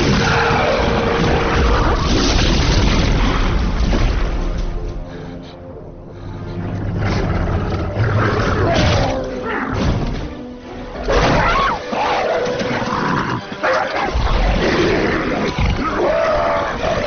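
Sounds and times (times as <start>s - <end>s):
dramatic film score: 0.0s - 17.0s
dogs snarling and roaring: 6.6s - 9.9s, 11.0s - 17.0s.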